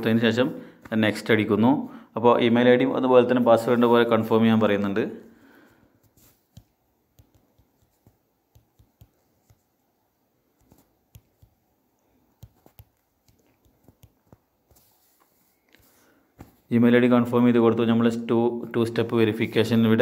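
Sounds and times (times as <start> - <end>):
smartphone keyboard tapping clicks: 6.5 - 9.7, 10.6 - 11.6.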